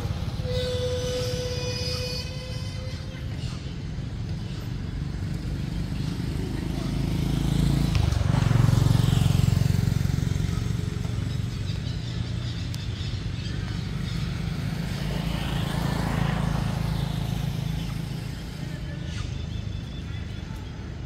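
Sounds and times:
motor engine running: 4.2s - 20.9s.

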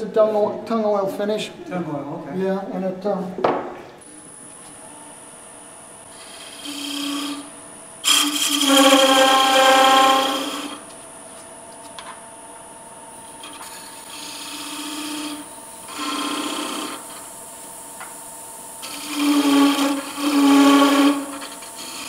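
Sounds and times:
lathe motor hum: 5.0s - 11.1s, 13.0s - 22.0s
tool cutting wood buzz: 6.1s - 10.9s, 13.2s - 22.0s.

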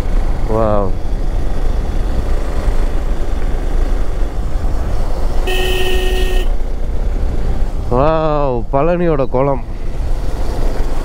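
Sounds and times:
motorcycle engine: 0.0s - 8.4s
wind: 0.0s - 11.0s
vehicle horn blast: 5.4s - 6.6s.

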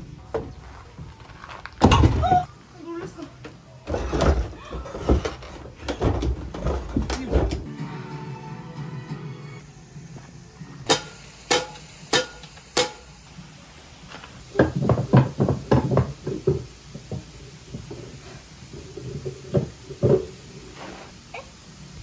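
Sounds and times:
wooden knocks and rattles: 3.9s - 7.7s, 14.6s - 17.9s.

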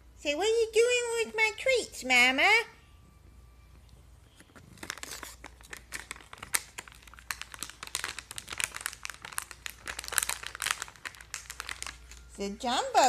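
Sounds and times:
treat bag crinkling: 4.4s - 12.6s.

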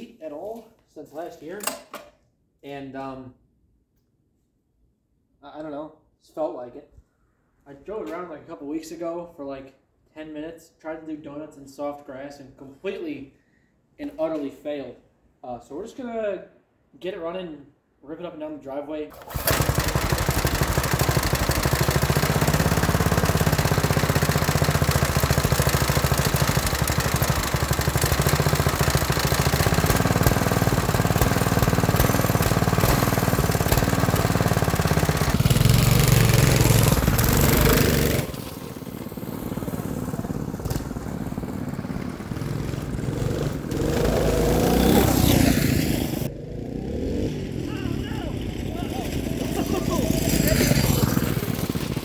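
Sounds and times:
go-kart driving up: 19.1s - 52.0s
small gas engines idling and revving: 19.1s - 52.0s.

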